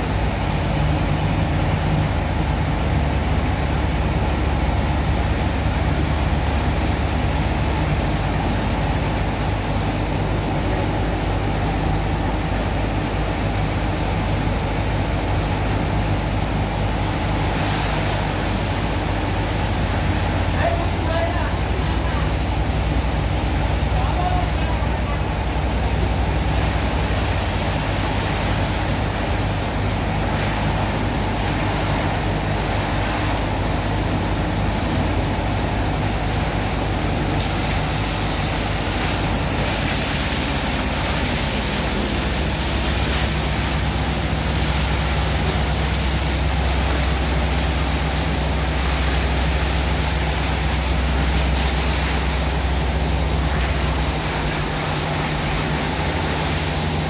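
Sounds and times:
pump engine droning: 0.0 - 57.0
water rushing from hoses: 0.0 - 57.0.

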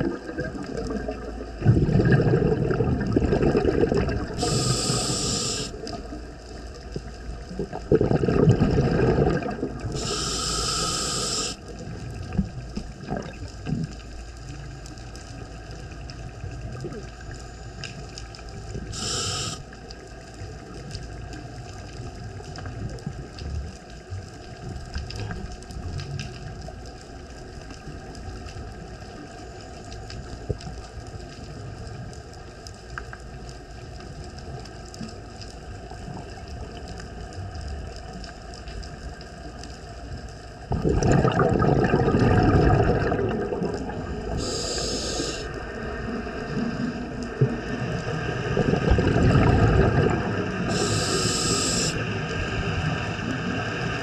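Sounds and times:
exhaled bubbles rushing: 0.0 - 6.1, 7.4 - 10.1, 12.2 - 13.9, 40.6 - 44.9, 45.5 - 51.0
faint underwater background: 0.0 - 54.0
regulator inhale hiss: 4.3 - 6.1, 9.8 - 11.8, 18.8 - 19.9, 44.3 - 45.8, 50.6 - 52.2.

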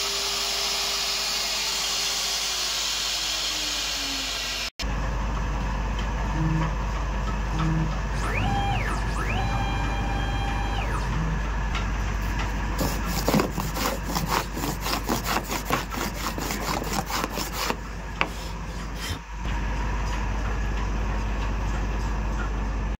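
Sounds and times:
router machine hum: 0.0 - 4.7, 6.2 - 19.7
hand rubbing sawdust off board: 12.8 - 19.2.

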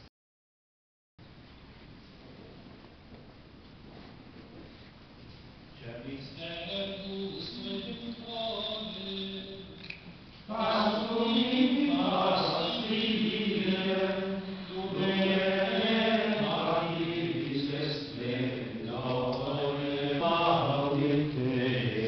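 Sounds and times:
men chanting: 10.5 - 22.0.

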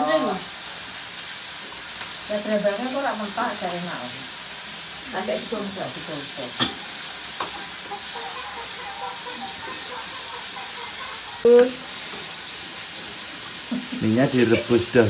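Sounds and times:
oil sizzling in a wok: 0.0 - 15.0
utensils clicking against pans: 6.6 - 12.5.

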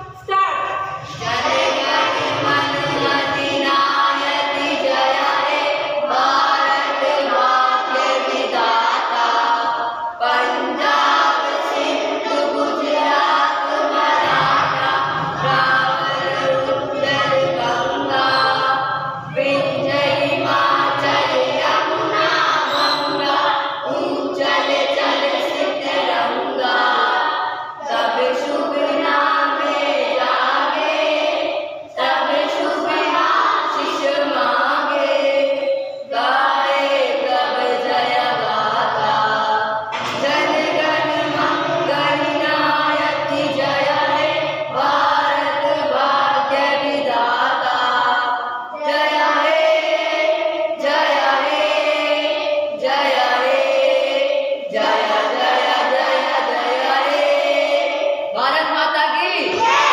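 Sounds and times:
children singing in unison: 0.0 - 59.9.

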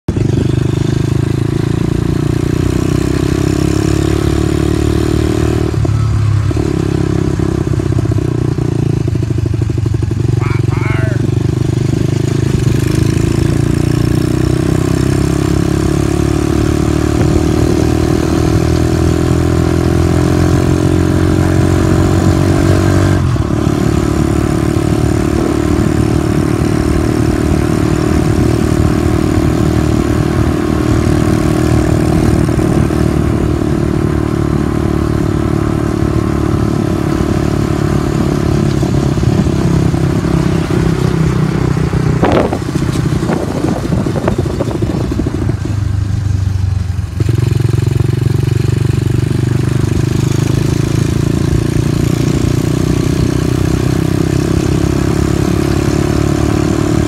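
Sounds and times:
dirt bike engine running: 0.1 - 57.0.

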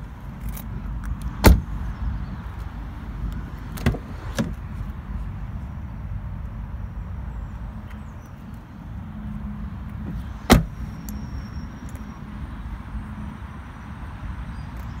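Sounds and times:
car door shutting thud: 1.4 - 1.7, 3.8 - 4.6, 10.0 - 10.8.

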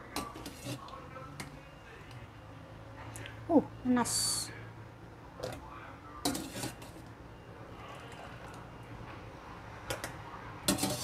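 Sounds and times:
metal utensils clinking on pot: 6.2 - 7.0, 9.9 - 11.0.

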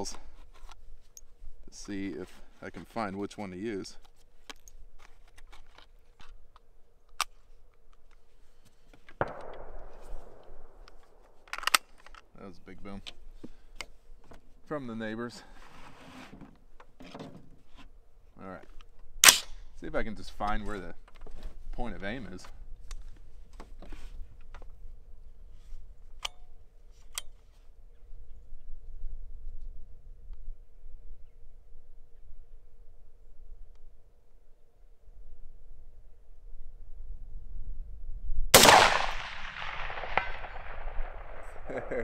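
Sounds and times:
rifle handling clicks and knock: 4.0 - 8.2, 8.9 - 12.3, 26.0 - 27.4
distant gunshot with echo: 9.2 - 10.8, 38.6 - 42.0.

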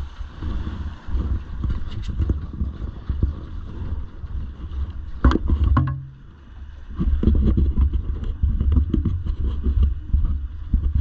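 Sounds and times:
drag boat rumbling: 0.0 - 11.0
irregular thumps: 5.2 - 6.3.

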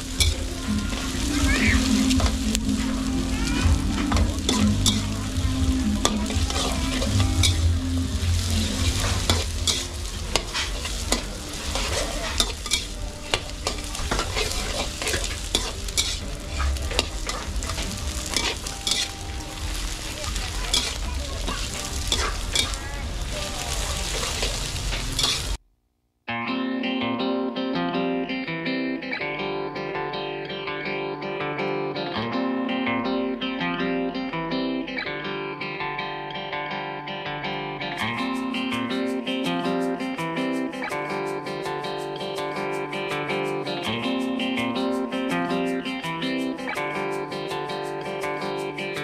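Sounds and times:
guitar music: 0.0 - 25.6, 26.3 - 49.0
rice sizzling in a wok: 0.0 - 25.6
metal ladle scraping a pan: 8.4 - 20.1, 20.7 - 22.8, 24.0 - 25.6.

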